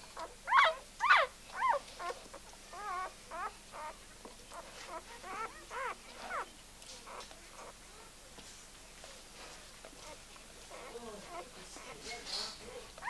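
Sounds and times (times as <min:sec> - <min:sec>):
puppies squealing: 0:00.2 - 0:06.5, 0:10.7 - 0:12.9.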